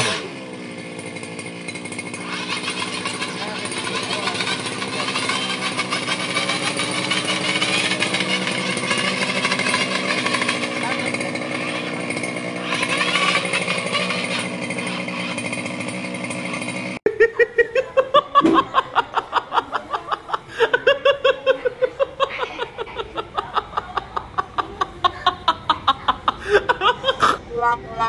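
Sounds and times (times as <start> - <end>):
small petrol engine running: 0.0 - 27.4
short pitched pulses: 2.0 - 17.0.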